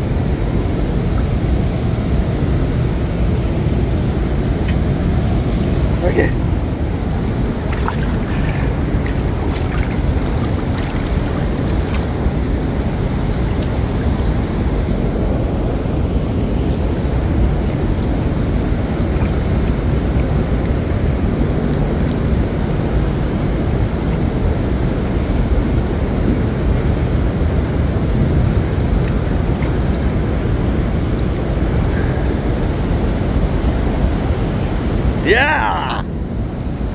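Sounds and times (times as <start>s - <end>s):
wind buffeting microphone: 0.0s - 35.2s
water lapping and sloshing: 0.1s - 35.2s
faint small splashes: 7.0s - 14.0s.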